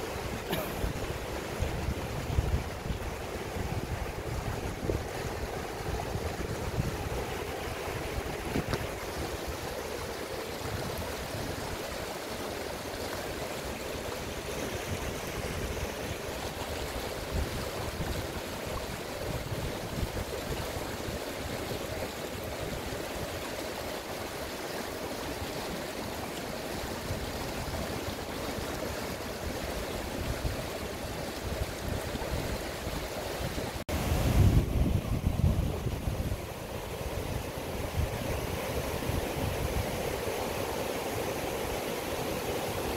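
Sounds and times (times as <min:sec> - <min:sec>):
wind noise on microphone: 0:00.0 - 0:09.8, 0:10.6 - 0:12.0, 0:14.5 - 0:23.5, 0:27.0 - 0:40.5
river water rushing: 0:00.0 - 0:42.9.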